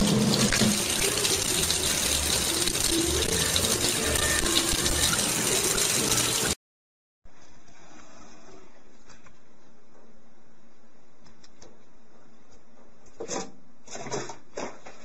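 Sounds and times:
faucet water splashing into sink: 0:00.0 - 0:06.6.

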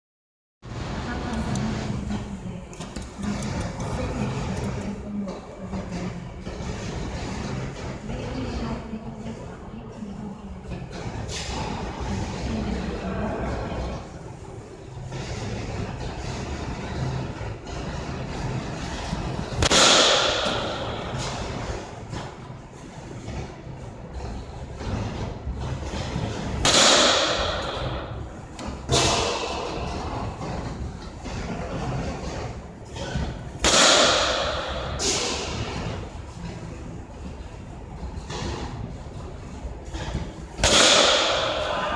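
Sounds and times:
low machinery hum: 0:00.6 - 0:41.9
baseball bat crack: 0:19.6 - 0:21.5, 0:26.6 - 0:29.8, 0:33.6 - 0:35.7, 0:40.6 - 0:41.9.

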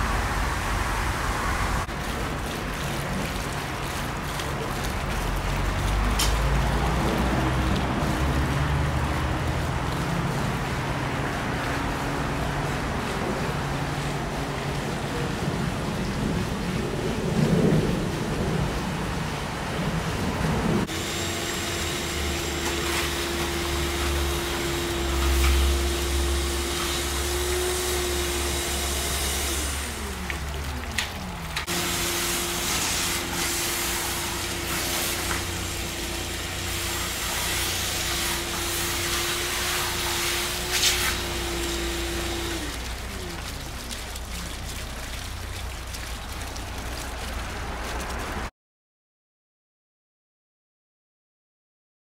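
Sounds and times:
motor rumbling: 0:20.6 - 0:48.5
machine hum: 0:20.8 - 0:48.4.

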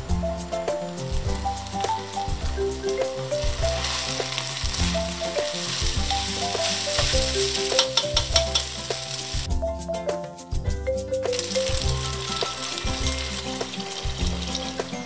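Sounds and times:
rice and chicken sizzling in a pot: 0:00.0 - 0:09.5, 0:11.3 - 0:15.0
background music: 0:00.0 - 0:15.0
spatula scraping a pot: 0:01.0 - 0:09.4.

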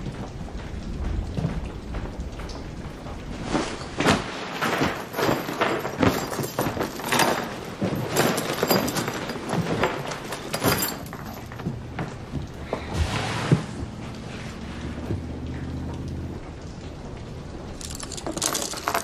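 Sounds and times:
cloth and bag rustling: 0:03.3 - 0:15.1
knocks scrapes and thuds: 0:03.4 - 0:15.4.

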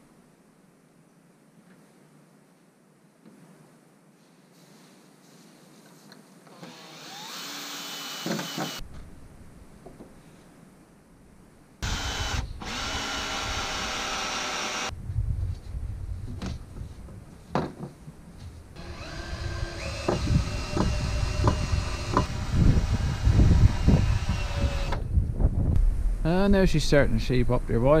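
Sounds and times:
cordless drill whining: 0:06.5 - 0:08.8, 0:11.8 - 0:14.9, 0:18.8 - 0:25.0
knocks of wood and screw: 0:08.2 - 0:08.8, 0:17.5 - 0:18.0, 0:19.8 - 0:22.5.

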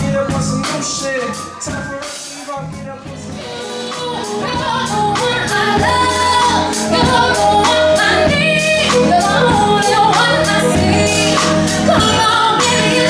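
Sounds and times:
electric bass: 0:00.0 - 0:01.9, 0:02.6 - 0:13.0
drum kit steady beat: 0:00.0 - 0:13.0
woman singing: 0:03.3 - 0:13.0.

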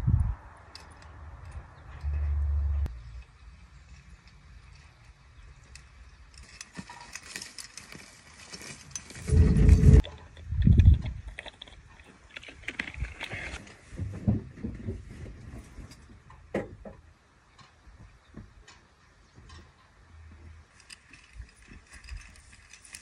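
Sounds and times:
wind gusts on microphone: 0:00.0 - 0:00.6, 0:09.2 - 0:11.4.

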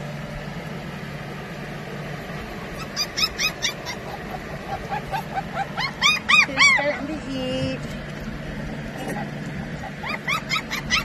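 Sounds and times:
steady low hum: 0:00.0 - 0:11.0
puppies yipping: 0:02.6 - 0:07.2, 0:08.8 - 0:11.0.

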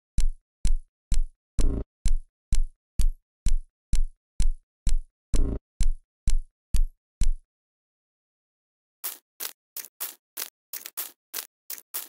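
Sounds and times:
electronic glitch drum loop: 0:01.6 - 0:01.8, 0:05.4 - 0:05.6, 0:09.0 - 0:12.0.

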